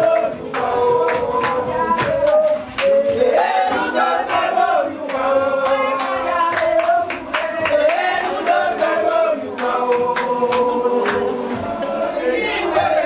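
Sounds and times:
choir singing: 0:00.0 - 0:13.0.

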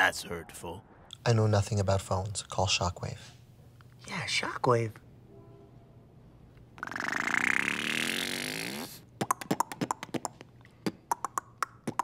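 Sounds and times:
beatboxing buzzing tone: 0:06.8 - 0:12.0
beatboxing clicks and pops: 0:06.8 - 0:12.0.

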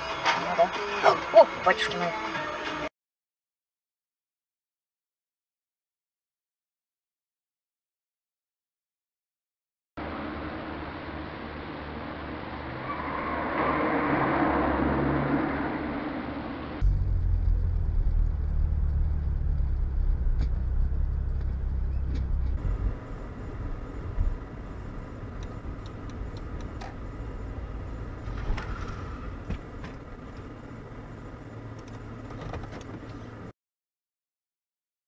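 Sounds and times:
car road and engine rumble: 0:10.0 - 0:33.5.

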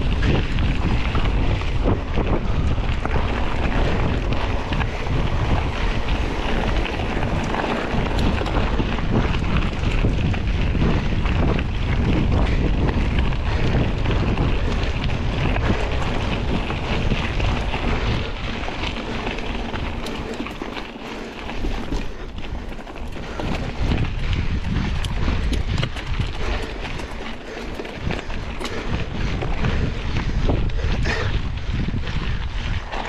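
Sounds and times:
tyres crunching over gravel: 0:00.0 - 0:33.0
wind buffeting microphone: 0:00.0 - 0:33.0.

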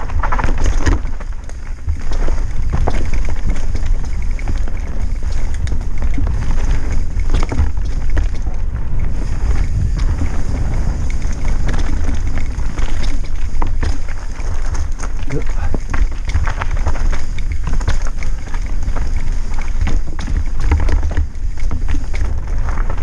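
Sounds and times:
bike rattling and knocking: 0:00.0 - 0:23.0
bike tyres rolling over dirt: 0:00.0 - 0:23.0
wind buffeting microphone: 0:00.0 - 0:23.0.

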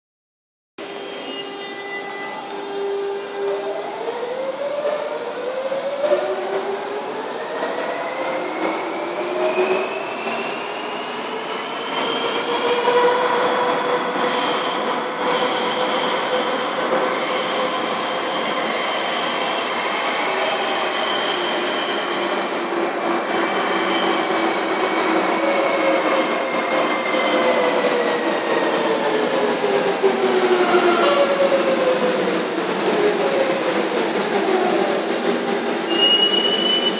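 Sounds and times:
train wheel squeal: 0:00.9 - 0:02.5, 0:08.1 - 0:13.0, 0:14.1 - 0:22.5, 0:23.1 - 0:28.8, 0:35.8 - 0:36.9.

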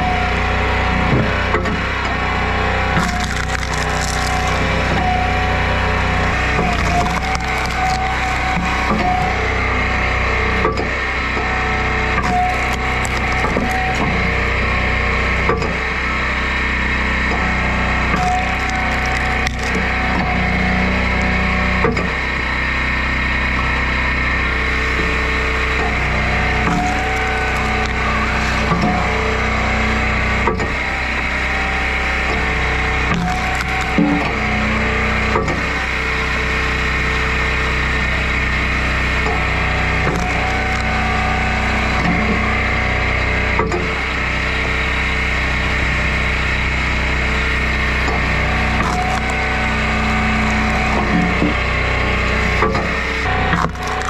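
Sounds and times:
log splitter engine running: 0:00.0 - 0:54.0
firewood cracking apart: 0:02.2 - 0:14.8, 0:17.4 - 0:21.4, 0:24.7 - 0:29.5, 0:32.0 - 0:34.5, 0:38.4 - 0:42.1, 0:47.5 - 0:54.0.

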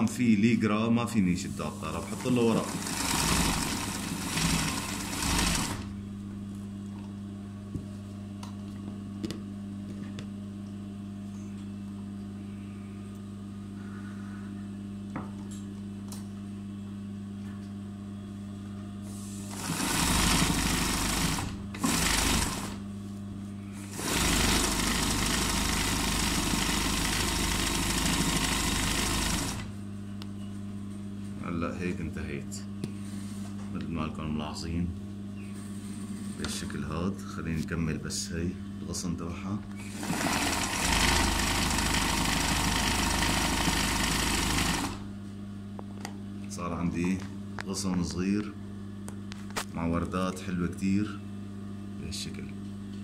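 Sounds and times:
steady low hum: 0:00.0 - 0:24.0, 0:28.7 - 0:42.2, 0:44.8 - 0:53.0
sewing machine stitching: 0:02.1 - 0:05.9, 0:19.5 - 0:22.8, 0:23.9 - 0:29.7, 0:39.9 - 0:45.0.

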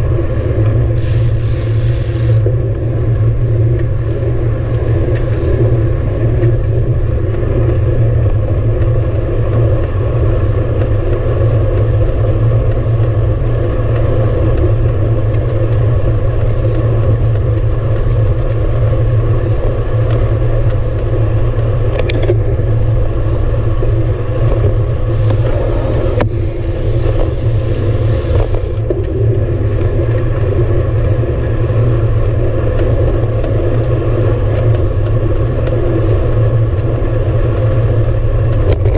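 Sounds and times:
bicycle tyre noise on pavement: 0:00.0 - 0:38.9
wind rumble: 0:00.0 - 0:38.9
higher hiss: 0:01.0 - 0:02.4, 0:25.1 - 0:28.8.

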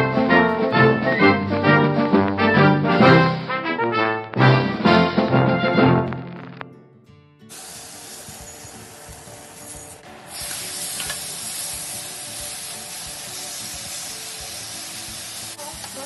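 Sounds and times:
chicken sizzling in hot pan: 0:07.5 - 0:16.0.

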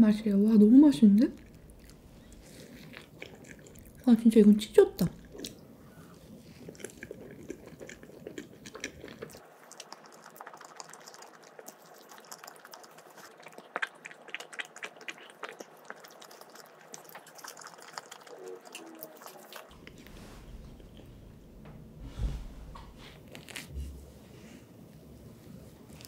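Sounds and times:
wet chewing: 0:00.0 - 0:21.8, 0:23.1 - 0:23.8
mouth clicks and smacks: 0:06.6 - 0:21.1.

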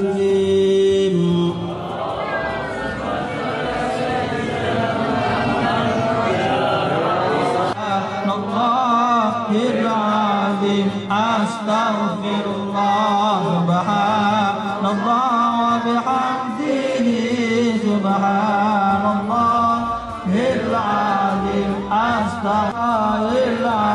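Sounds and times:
men chanting: 0:00.0 - 0:23.9.

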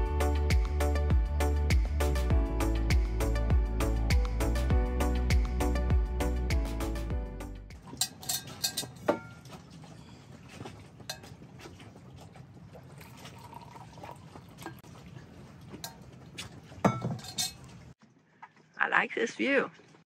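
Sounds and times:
coffee trickling into mugs: 0:07.8 - 0:18.8.

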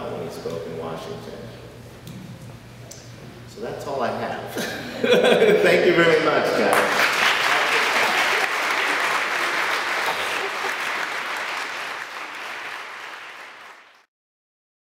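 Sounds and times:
audience applauding: 0:06.7 - 0:14.1.

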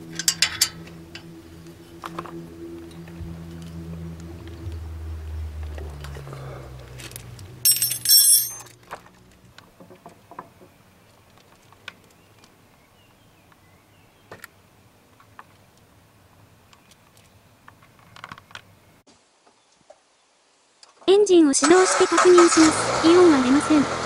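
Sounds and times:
ratchet wrench clinking: 0:00.1 - 0:01.3, 0:07.7 - 0:08.7.

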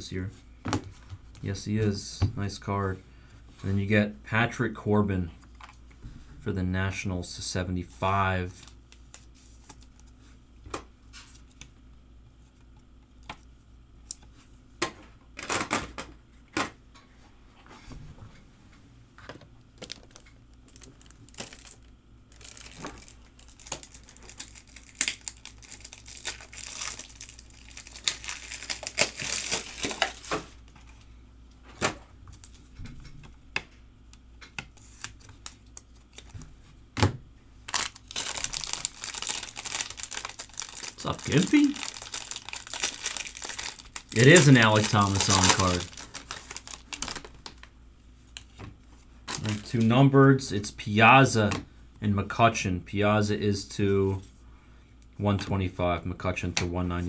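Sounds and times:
foil wrappers crinkling and tearing: 0:19.8 - 0:30.4, 0:34.8 - 0:36.5, 0:37.7 - 0:47.7, 0:49.3 - 0:49.8.

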